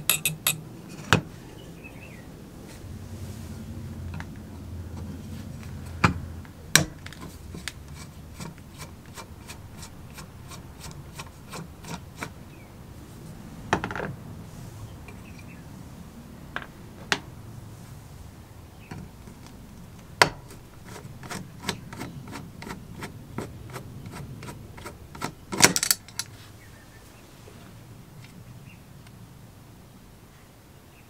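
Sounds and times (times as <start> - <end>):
metallic clatter: 0.0 - 0.6, 20.5 - 26.3
screwdriver clicking on screw: 0.0 - 0.6.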